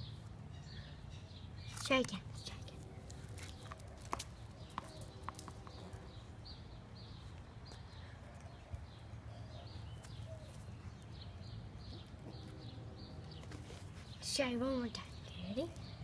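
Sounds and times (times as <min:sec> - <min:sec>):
bird chirping: 0:00.0 - 0:16.0.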